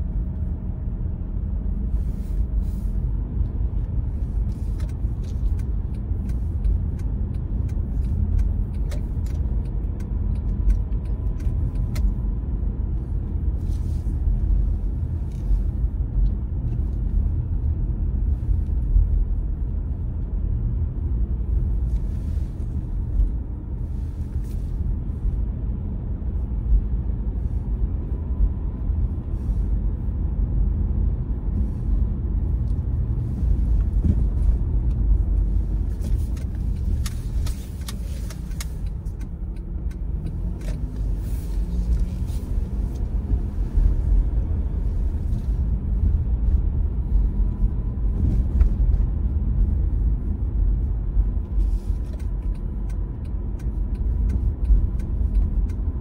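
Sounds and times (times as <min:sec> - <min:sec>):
car engine and tyres rumbling: 0:00.0 - 0:56.0.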